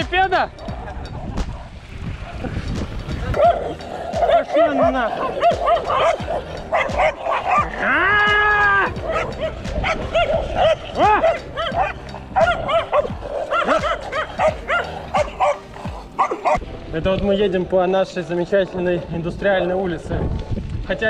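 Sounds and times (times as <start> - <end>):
dogs barking rapidly: 3.2 - 16.6.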